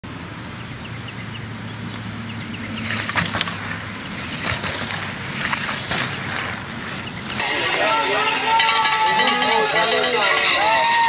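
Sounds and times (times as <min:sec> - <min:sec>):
bike tyres swishing through wet grass: 0:02.4 - 0:07.4.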